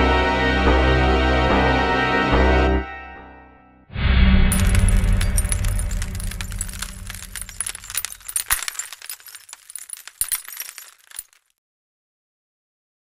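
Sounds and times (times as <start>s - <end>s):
music: 0.0s - 4.4s
sharp clicks and crackles: 4.6s - 11.4s.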